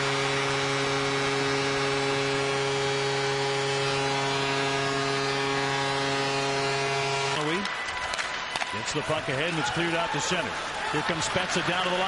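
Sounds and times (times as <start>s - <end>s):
goal horn long blast: 0.0s - 7.7s.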